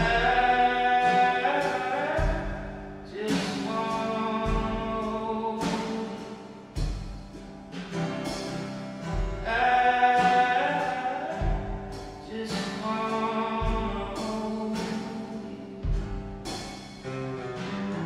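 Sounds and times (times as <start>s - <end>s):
man singing: 0.0s - 6.4s, 9.4s - 16.0s
acoustic guitar: 0.0s - 18.0s
drum kit: 0.0s - 18.0s
kick drum: 15.9s - 16.4s.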